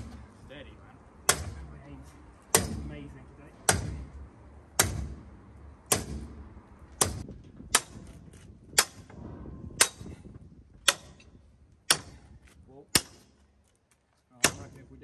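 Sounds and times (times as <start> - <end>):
sledgehammer clanging on steel: 1.3 - 4.2, 7.0 - 13.4, 14.4 - 14.9.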